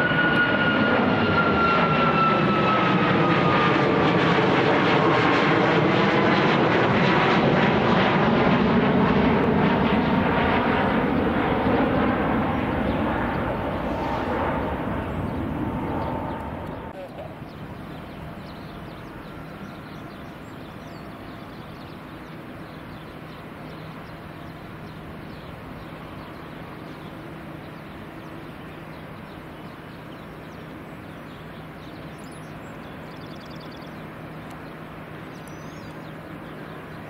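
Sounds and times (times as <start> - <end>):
outdoor rumble with low hum: 0.0 - 37.0
bird chirps and trill: 17.4 - 37.0.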